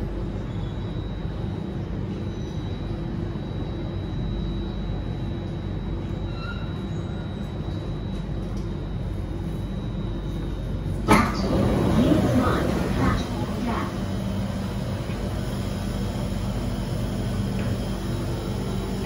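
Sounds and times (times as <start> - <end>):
high whine: 4.0 - 19.0
train wheels rumbling on track: 10.8 - 19.0.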